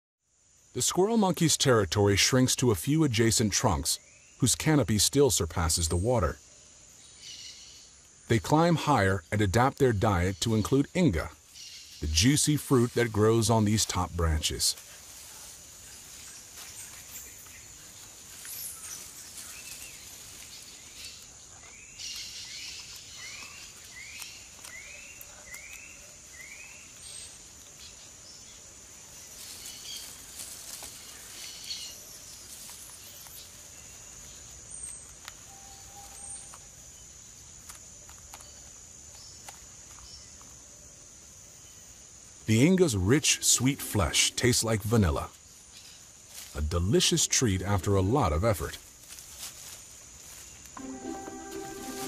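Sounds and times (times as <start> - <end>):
bird calls: 29.3 - 37.2.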